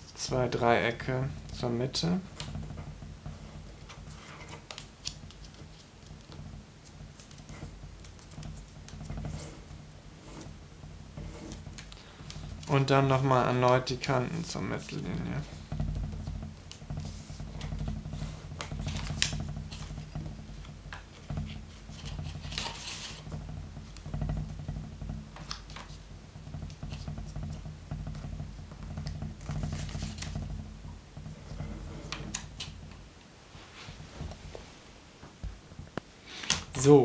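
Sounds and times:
low steady hum: 0:00.0 - 0:37.0
paper rustling and crinkling: 0:21.2 - 0:23.3, 0:29.4 - 0:30.4.

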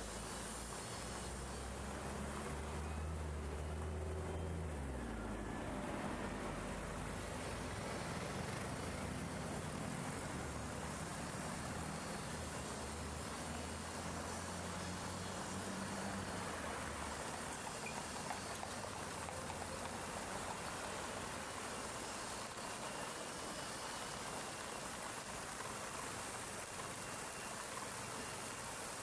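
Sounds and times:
bus engine rumble: 0:00.0 - 0:22.5
fountain splashing: 0:00.0 - 0:29.0
street traffic: 0:00.0 - 0:29.0.

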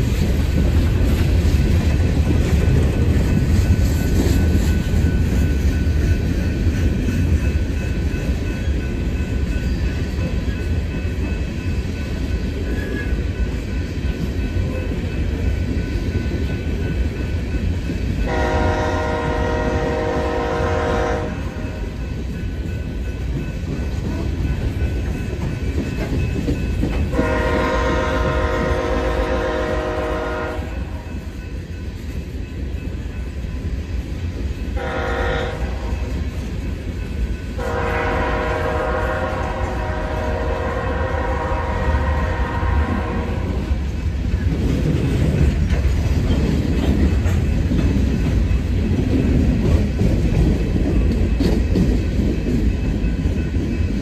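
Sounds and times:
train cars rumbling and clacking: 0:00.0 - 0:54.0
locomotive air horn: 0:18.3 - 0:21.6, 0:27.1 - 0:31.0, 0:34.8 - 0:36.0, 0:37.6 - 0:43.6.

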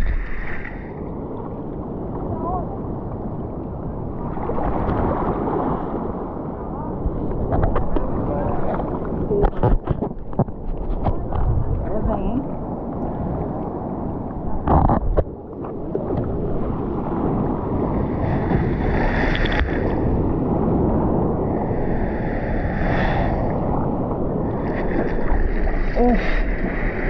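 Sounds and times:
surf washing in: 0:00.0 - 0:27.0
water sloshing around a bodyboard: 0:07.0 - 0:13.6, 0:24.5 - 0:27.0.

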